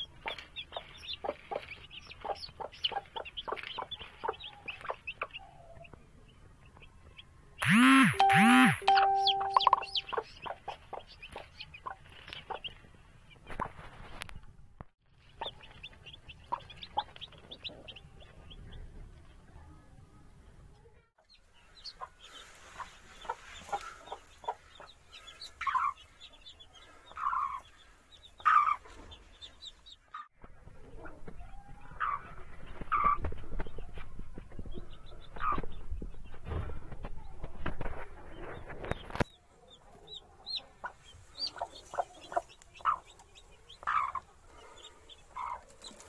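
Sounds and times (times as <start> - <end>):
hen clucking: 0.0 - 5.9, 21.2 - 30.3, 30.9 - 33.2, 39.8 - 46.0
chicks peeping: 0.0 - 14.5, 15.1 - 20.0, 20.6 - 46.0.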